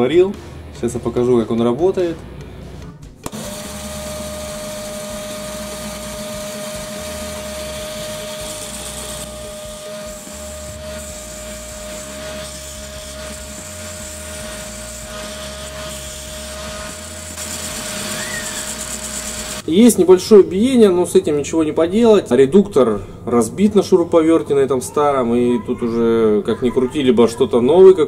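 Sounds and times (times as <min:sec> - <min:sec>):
cordless drill whining: 0:03.2 - 0:19.7
wooden block rasping on sanding disc: 0:03.3 - 0:19.6.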